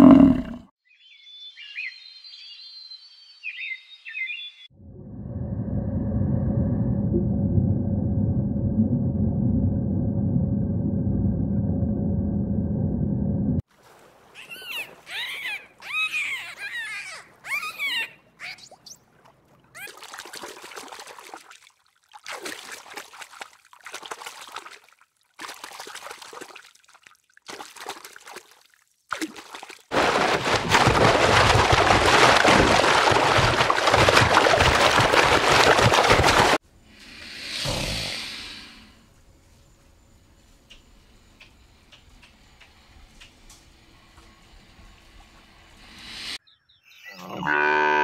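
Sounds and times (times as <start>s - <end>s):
water trickling and splashing: 13.6s - 16.0s, 18.6s - 36.6s
dolphins whistling: 14.4s - 18.8s.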